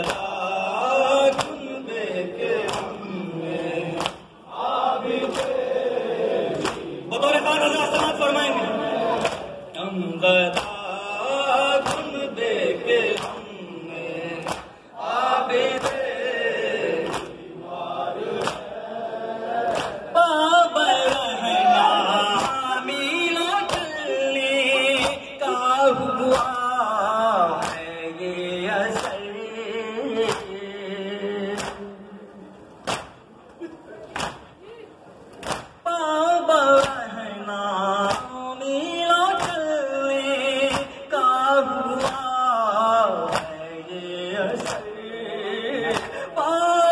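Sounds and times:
chest-beating slaps: 0.0s - 0.3s, 1.3s - 1.6s, 2.6s - 3.0s, 4.0s - 4.3s, 5.2s - 5.6s, 6.5s - 7.0s, 10.5s - 10.8s, 11.8s - 12.2s, 13.0s - 13.5s, 14.4s - 14.8s, 15.7s - 16.1s, 17.0s - 17.4s, 18.4s - 18.7s, 19.7s - 20.1s, 27.6s - 27.9s, 31.5s - 31.9s, 32.8s - 33.3s, 34.1s - 34.6s, 35.3s - 35.8s, 39.4s - 39.6s, 43.2s - 43.6s, 44.6s - 44.9s
men chanting in chorus: 0.0s - 32.4s, 36.1s - 46.9s.

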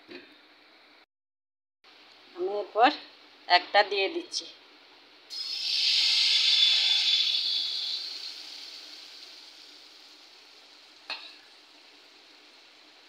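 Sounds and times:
batter sizzling in hot oil: 5.3s - 13.0s.

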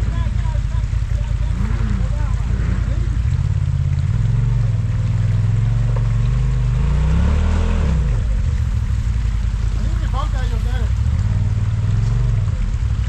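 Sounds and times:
utility vehicle engine running: 0.0s - 13.0s.

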